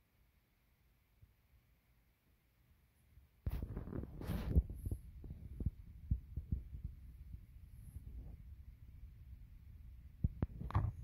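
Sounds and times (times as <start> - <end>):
faint low rumbling: 3.5 - 11.0.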